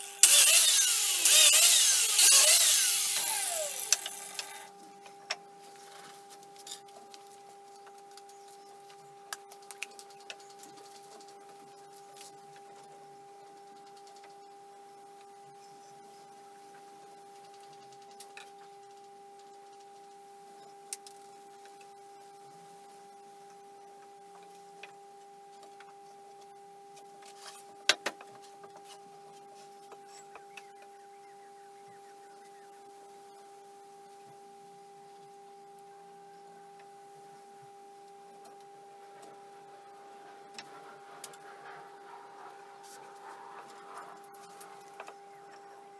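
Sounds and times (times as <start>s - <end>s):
steady high hum: 0.0s - 45.9s.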